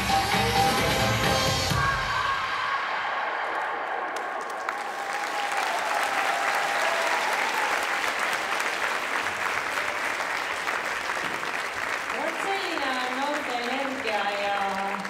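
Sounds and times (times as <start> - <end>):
audience applauding: 3.4 - 15.0.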